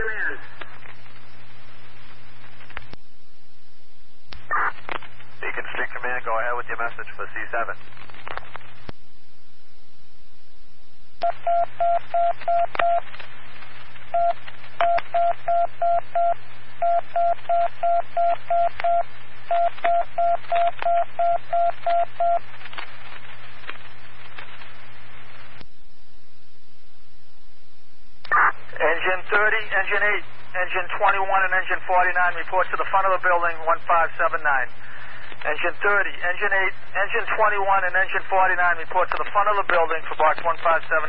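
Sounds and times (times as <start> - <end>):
radio hiss: 0.0 - 3.0, 4.4 - 8.9, 28.2 - 41.0
low hum: 0.0 - 6.0, 6.6 - 31.6.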